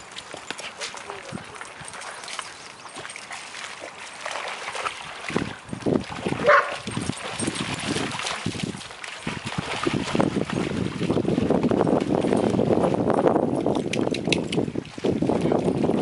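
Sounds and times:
dogs splashing through water: 0:00.0 - 0:16.0
dog barking: 0:06.4 - 0:06.8.

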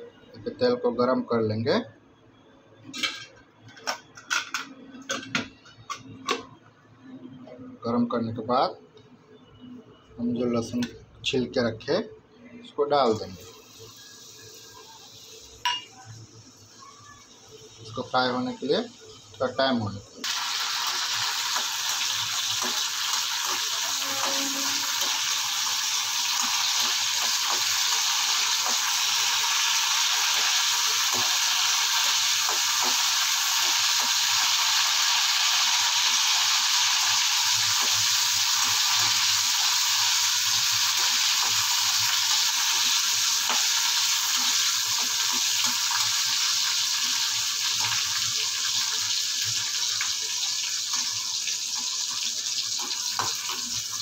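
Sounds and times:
garlic sizzling in hot oil: 0:13.2 - 0:54.0.

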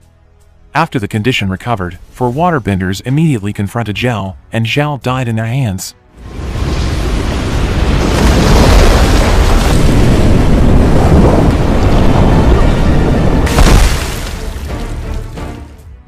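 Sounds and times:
huge wave crashing: 0:06.2 - 0:15.1
dramatic music: 0:11.9 - 0:16.0.

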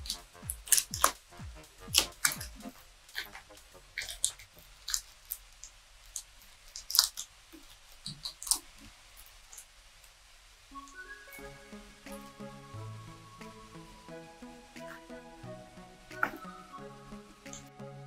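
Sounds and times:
electronic music with bass beats: 0:00.0 - 0:04.7, 0:11.4 - 0:18.0.

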